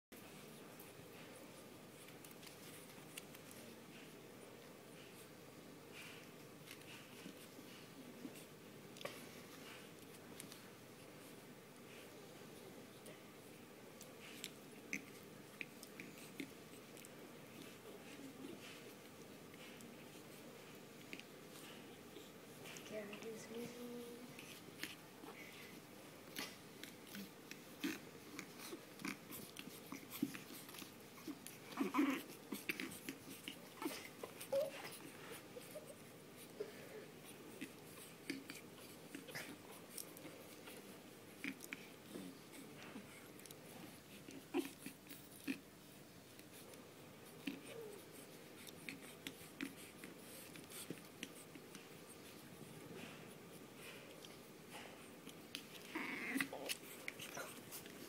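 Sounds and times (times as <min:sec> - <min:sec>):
puppies biting and chewing: 0:00.2 - 0:23.6, 0:24.3 - 0:58.0
puppies grunting: 0:14.1 - 0:58.0.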